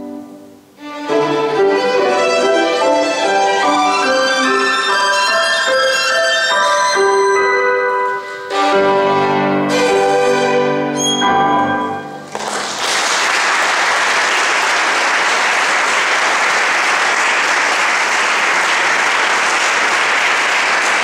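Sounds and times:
violin and piano: 0.0s - 12.3s
audience applause: 12.3s - 21.0s.

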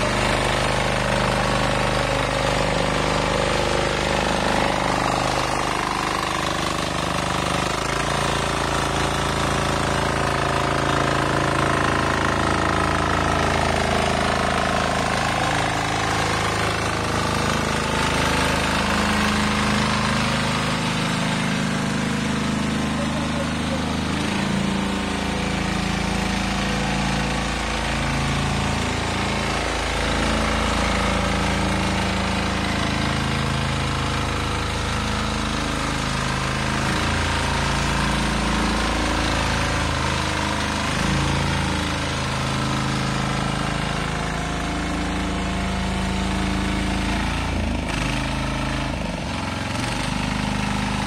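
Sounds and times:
rotary tines tilling soil: 0.0s - 34.4s
weeder engine running: 0.0s - 51.0s.

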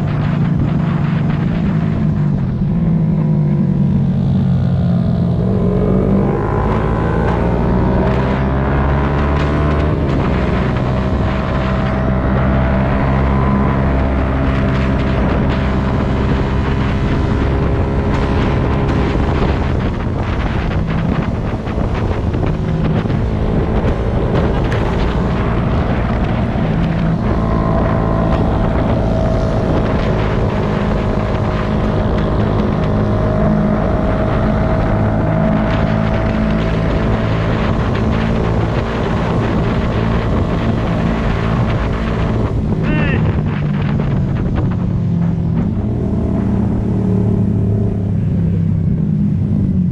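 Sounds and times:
motorcycle engine cruising: 0.0s - 49.9s
wind rushing across microphone: 0.0s - 49.9s.

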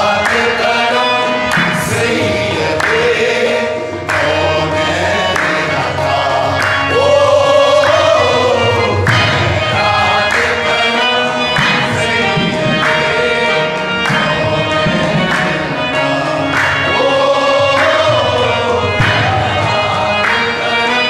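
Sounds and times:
harmonium: 0.0s - 21.0s
male voices singing in chorus: 0.0s - 21.0s.

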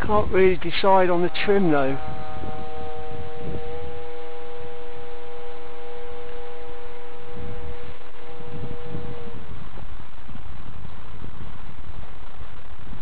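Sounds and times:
model aircraft motor whine: 0.0s - 9.5s
gusty rumble: 0.0s - 13.0s.

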